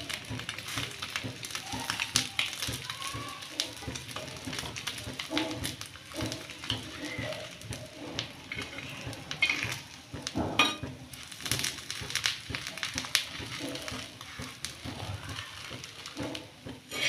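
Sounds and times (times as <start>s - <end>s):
food sizzling on griddle: 0.0s - 17.0s
metal spatula scraping pan: 5.2s - 10.8s, 16.1s - 17.0s.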